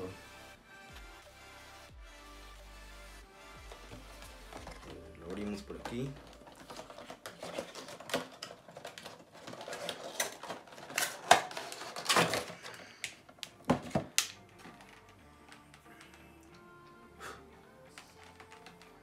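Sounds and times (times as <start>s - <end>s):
cardboard and plastic crinkling: 3.6s - 16.0s
plastic snaps: 5.6s - 17.0s, 17.9s - 19.0s.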